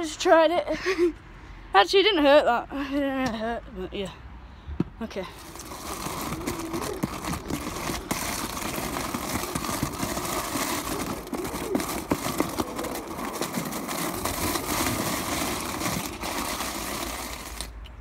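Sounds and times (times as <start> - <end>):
small wheels rolling on paving: 5.3 - 17.8.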